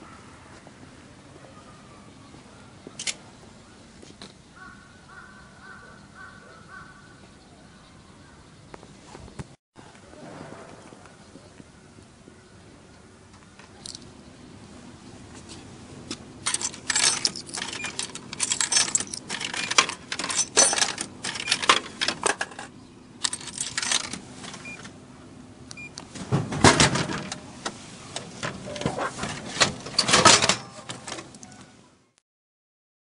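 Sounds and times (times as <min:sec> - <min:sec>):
coins clinking into coin slot: 0:16.4 - 0:24.9, 0:29.8 - 0:31.6.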